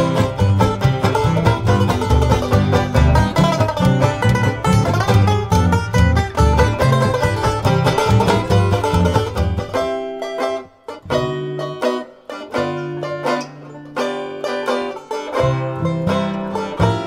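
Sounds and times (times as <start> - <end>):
plucked string tune: 0.0 - 17.0.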